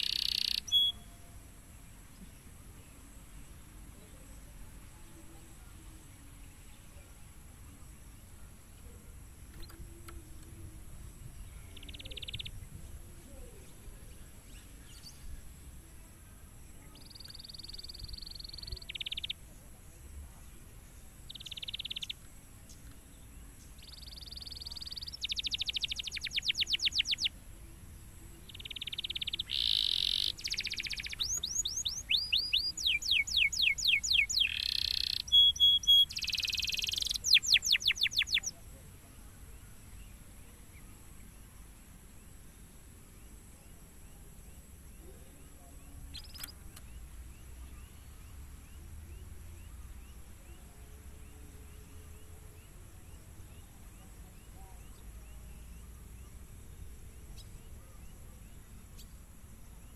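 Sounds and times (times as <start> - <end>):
canary singing trills: 0.0 - 1.5, 9.5 - 15.6, 16.8 - 19.6, 20.8 - 22.9, 23.6 - 41.4, 43.6 - 56.4.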